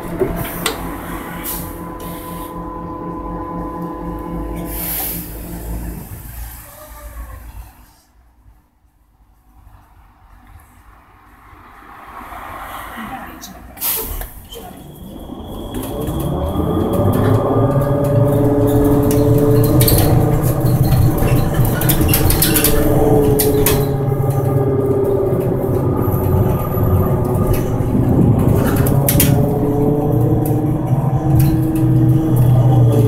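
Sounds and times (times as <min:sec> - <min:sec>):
low road rumble: 0:00.0 - 0:33.0
electric motor whining: 0:15.1 - 0:33.0
bus body knocks and rattles: 0:17.1 - 0:33.0.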